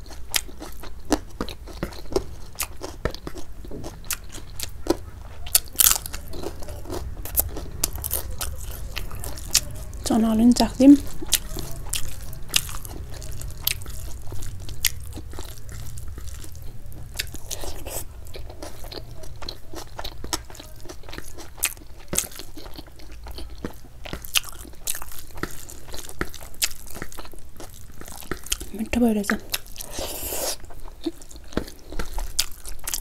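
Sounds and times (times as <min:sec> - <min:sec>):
chewing food: 0:00.0 - 0:33.0
low hum: 0:03.5 - 0:20.5.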